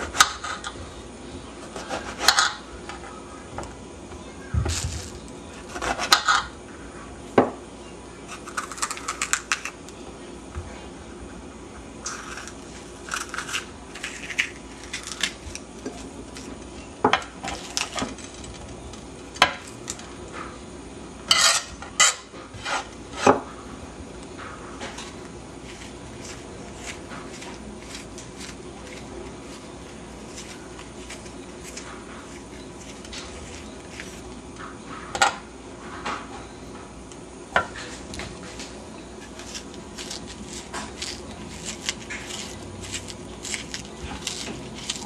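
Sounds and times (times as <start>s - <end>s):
knife scraping vegetables: 1.6s - 3.0s, 4.7s - 6.5s, 8.3s - 9.8s, 12.0s - 16.5s, 21.3s - 23.4s, 24.9s - 34.3s, 37.8s - 45.0s.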